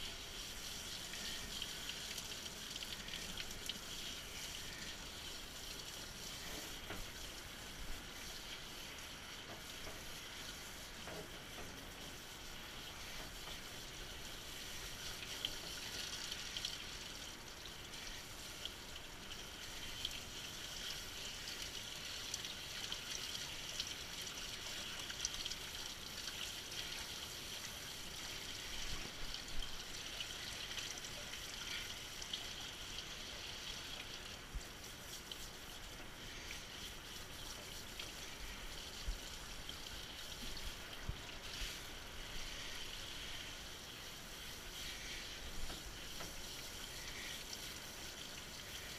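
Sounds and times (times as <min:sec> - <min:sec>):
shower sprayer spraying water: 0:40.4 - 0:48.2.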